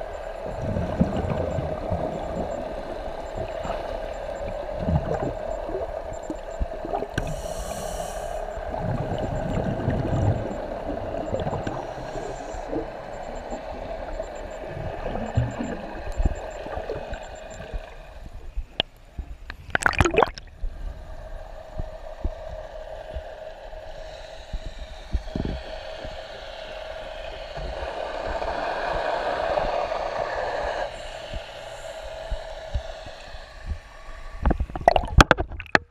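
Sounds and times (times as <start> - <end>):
steady hum: 0.0 - 35.9
underwater regulator bubbles gurgling: 0.1 - 18.2, 19.6 - 20.5, 34.4 - 35.9.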